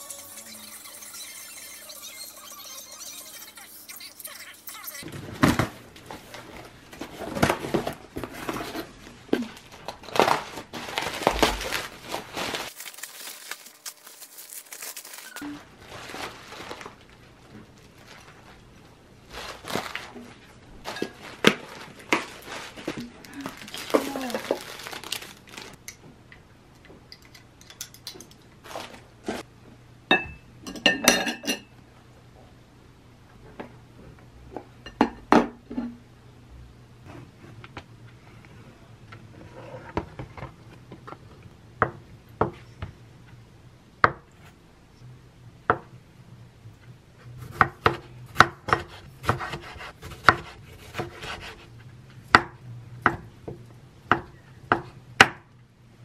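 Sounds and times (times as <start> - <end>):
ceramic plate clinking: 30.1 - 31.7.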